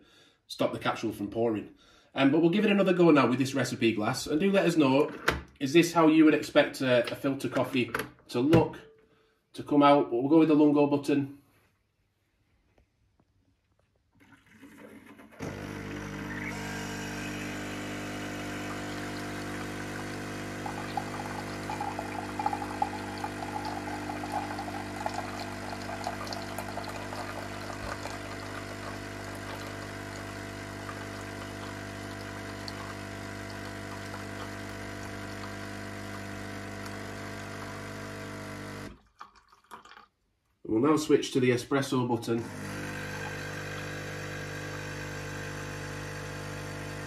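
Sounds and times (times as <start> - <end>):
coffee machine pump buzzing: 14.6 - 39.0, 42.4 - 47.0
coffee running into glass: 17.2 - 38.3, 38.9 - 40.1, 42.6 - 46.6.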